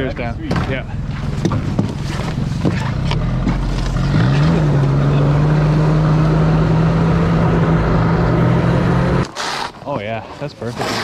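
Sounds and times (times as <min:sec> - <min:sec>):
snowmobile engine revving: 0:02.0 - 0:11.0.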